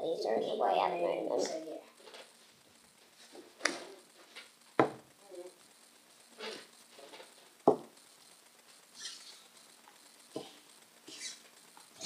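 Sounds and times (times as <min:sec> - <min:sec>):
plastic tubs knocking on table: 0:04.8 - 0:05.0, 0:07.6 - 0:07.9.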